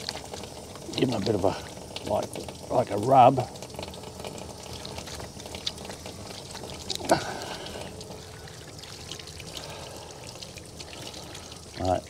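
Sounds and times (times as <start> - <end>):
running water pouring: 0.0 - 12.0.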